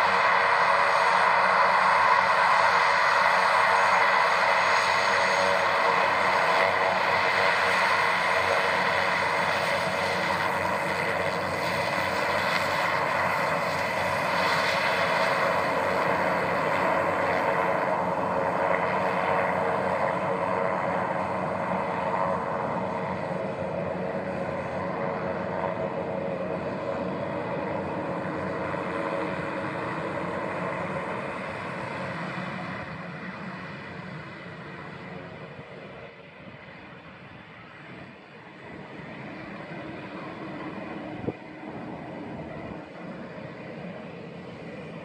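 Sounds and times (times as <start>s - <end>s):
propeller drone: 0.0s - 45.0s
turboprop turbine whine: 0.0s - 45.0s.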